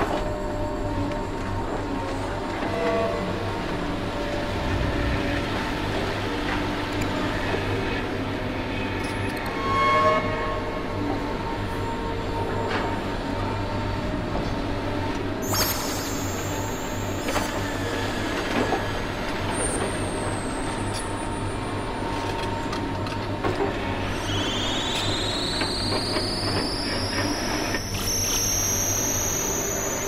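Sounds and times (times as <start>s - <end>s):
high metallic squeal: 9.1s - 13.0s, 15.4s - 21.6s, 24.1s - 30.0s.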